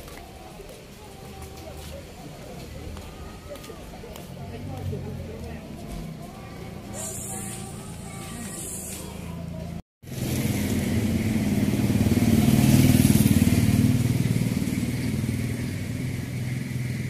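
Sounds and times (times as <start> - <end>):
engine running: 4.1 - 17.0.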